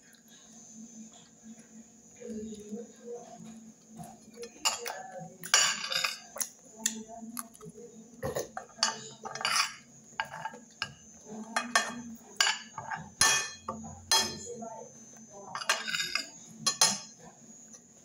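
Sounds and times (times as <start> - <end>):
metal spoon scraping a plate: 8.4 - 11.0, 15.5 - 17.2.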